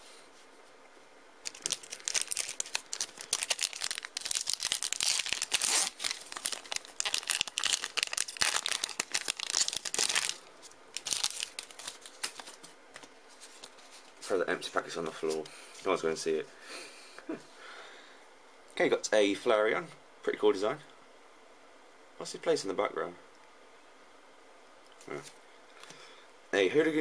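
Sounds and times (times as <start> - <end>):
foil wrapper crinkling and tearing: 1.4 - 12.6.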